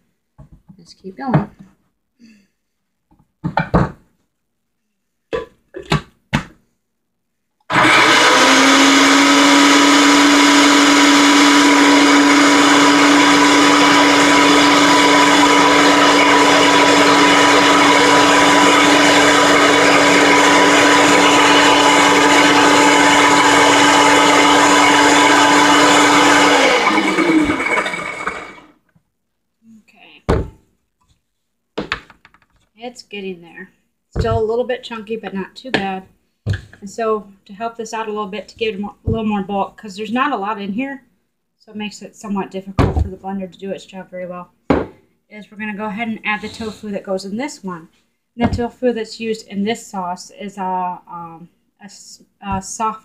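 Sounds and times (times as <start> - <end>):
blender running: 7.7 - 28.8.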